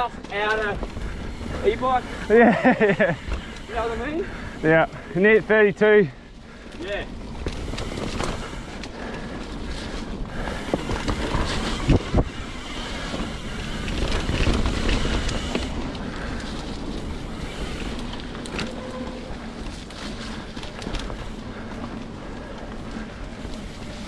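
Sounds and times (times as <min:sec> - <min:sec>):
bike rattling over bumps: 0:00.0 - 0:24.0
bike tyres rolling over dirt: 0:00.0 - 0:24.0
wind rumbling on microphone: 0:06.5 - 0:24.0.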